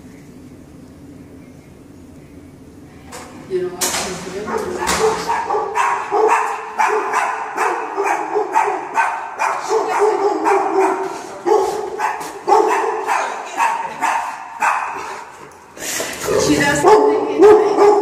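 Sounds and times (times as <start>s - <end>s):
dogs barking and whining: 4.4s - 18.0s.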